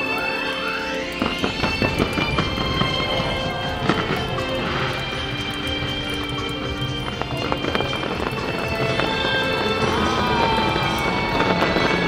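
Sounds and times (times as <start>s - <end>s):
fireworks crackling: 0.0s - 12.0s
music playing: 0.0s - 12.0s.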